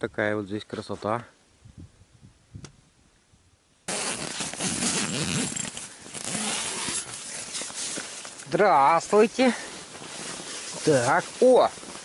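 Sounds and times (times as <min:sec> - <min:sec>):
zipper rasping and clicking: 0:03.9 - 0:08.3
tent fabric rustling: 0:03.9 - 0:12.0.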